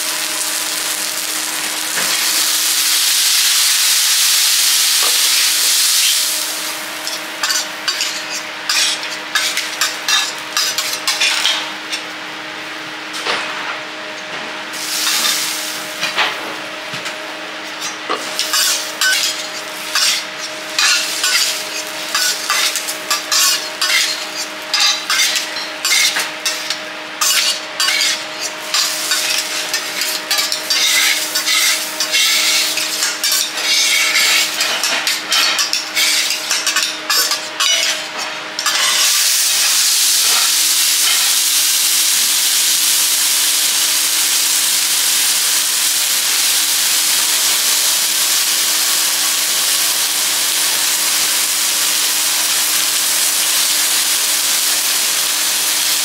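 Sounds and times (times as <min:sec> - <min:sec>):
meat sizzling on a griddle: 0:00.0 - 0:11.9, 0:14.7 - 0:16.3, 0:17.8 - 0:56.0
metal spatula scraping steel: 0:07.0 - 0:11.5, 0:17.8 - 0:39.2.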